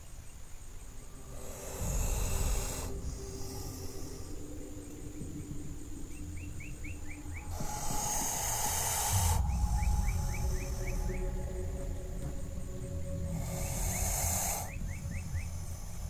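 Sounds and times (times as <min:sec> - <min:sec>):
bird chirping: 0:00.0 - 0:16.0
loud hiss: 0:00.0 - 0:16.0
low wind rumble: 0:00.0 - 0:16.0.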